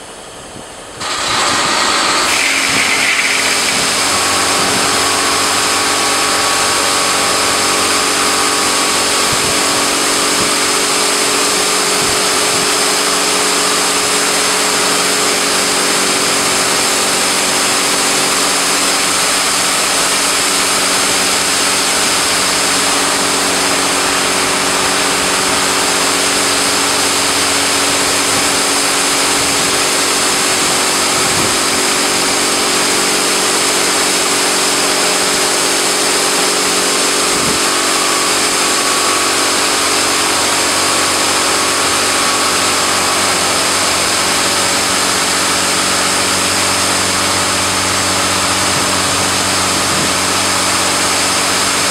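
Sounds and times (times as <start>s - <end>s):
pump humming: 0.0s - 51.9s
water jets hissing: 1.0s - 5.8s.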